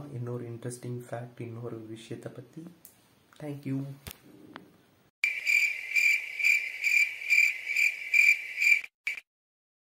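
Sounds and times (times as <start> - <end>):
insect chirping trill: 5.2 - 9.2.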